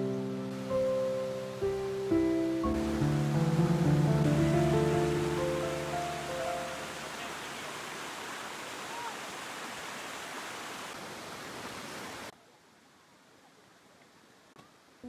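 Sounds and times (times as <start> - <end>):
waterfall pouring over rocks: 0.3 - 12.3.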